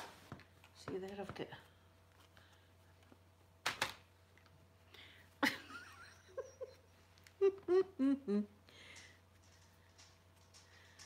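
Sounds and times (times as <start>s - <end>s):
woman humming: 7.4s - 8.7s.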